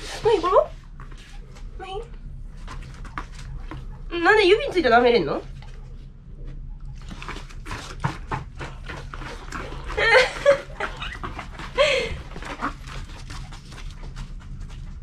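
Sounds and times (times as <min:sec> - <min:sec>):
dog lapping water: 0:06.8 - 0:15.0.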